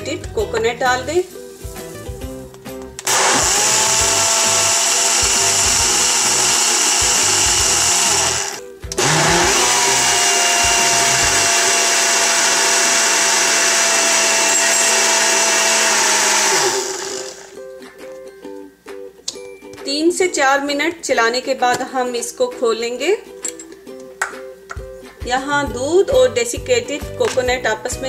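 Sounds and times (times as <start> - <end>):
blender motor whine: 3.0 - 17.6.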